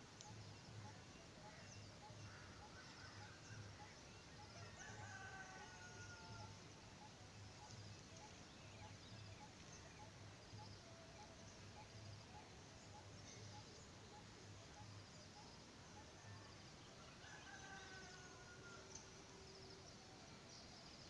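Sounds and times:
rooster crowing: 4.7s - 6.5s, 17.2s - 18.9s.

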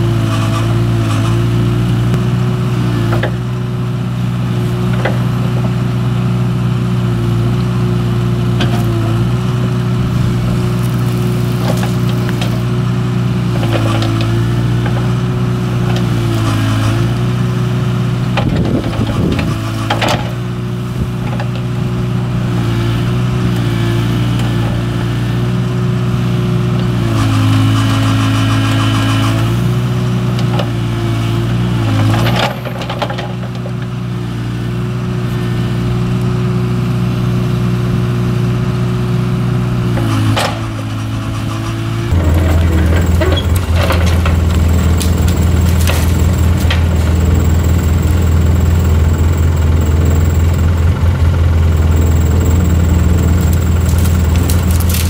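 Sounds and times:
excavator diesel engine running: 0.0s - 55.0s
sharp cracks and knocks: 42.1s - 48.2s, 53.4s - 55.0s.

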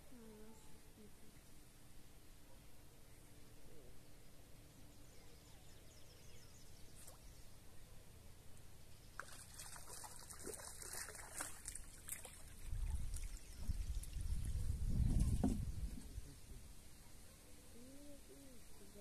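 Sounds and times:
water trickling and splashing: 9.1s - 15.6s.

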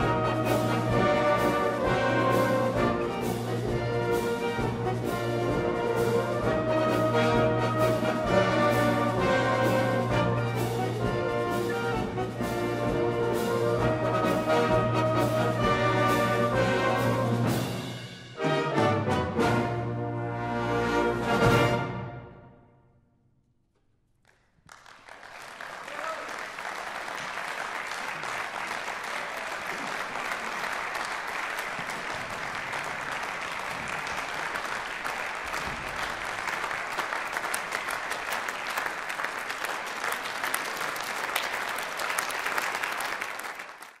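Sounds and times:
audience applause: 24.2s - 44.0s.

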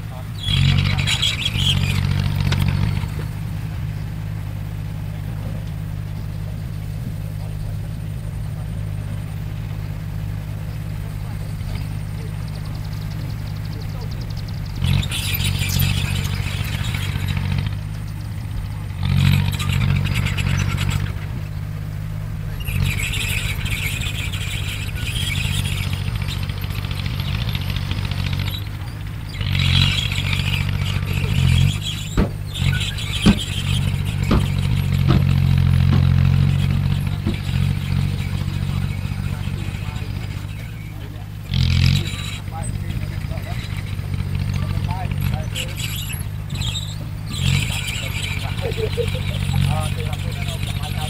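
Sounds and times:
steel tracks clattering and squealing: 0.0s - 4.0s, 7.2s - 51.0s
bulldozer diesel engine running: 0.0s - 51.0s
sharp knocks: 32.0s - 37.8s.

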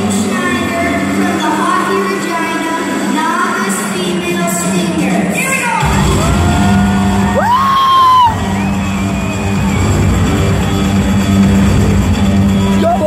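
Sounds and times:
fans whooping and yelling: 5.8s - 11.4s, 12.4s - 13.0s
music with heavy bass beat: 5.8s - 13.0s.

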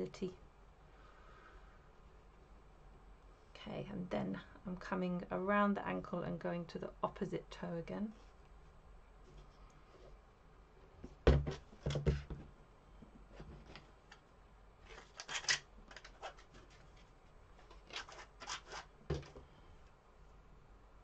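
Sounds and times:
wire rubbing scratchily: 17.7s - 19.0s.

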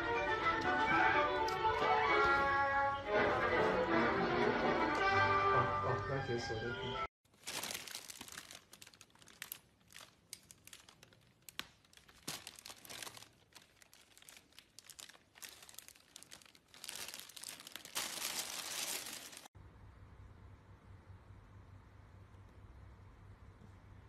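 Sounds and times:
plastic bag crinkling: 7.3s - 19.5s.

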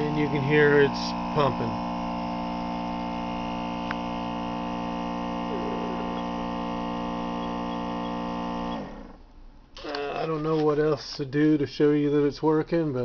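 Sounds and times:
pump humming: 0.0s - 9.2s.

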